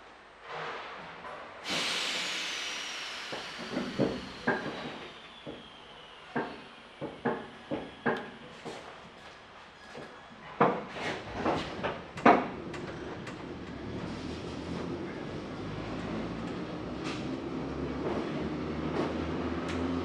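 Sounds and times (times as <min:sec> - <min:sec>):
compressed air hiss: 0:01.6 - 0:06.9
falling whistle: 0:03.3 - 0:08.2.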